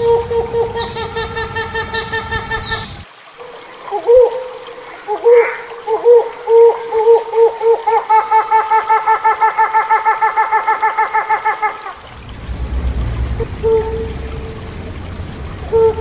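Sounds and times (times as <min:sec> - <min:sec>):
hornbill hooting: 0:00.0 - 0:03.0, 0:08.5 - 0:16.0.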